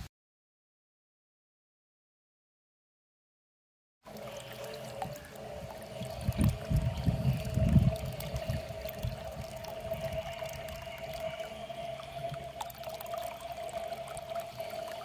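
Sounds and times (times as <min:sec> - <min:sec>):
hose water pouring into bucket: 0:04.1 - 0:15.0
steady hum: 0:04.1 - 0:15.0.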